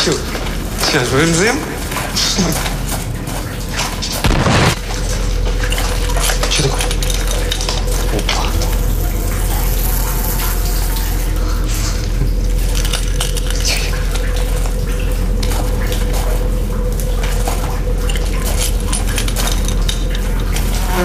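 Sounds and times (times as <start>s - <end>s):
low steady drone: 0.0s - 21.0s
footsteps crunching on debris: 1.9s - 5.5s.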